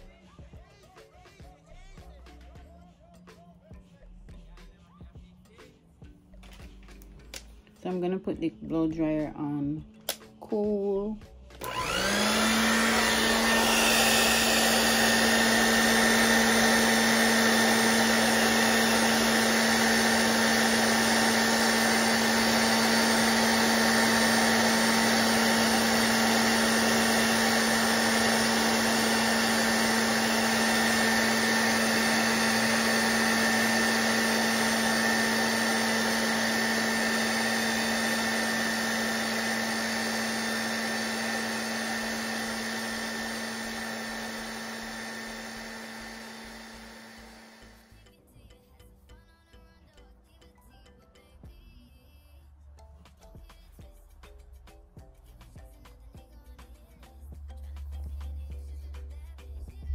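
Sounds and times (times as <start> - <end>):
hair dryer blowing air: 11.6 - 47.9.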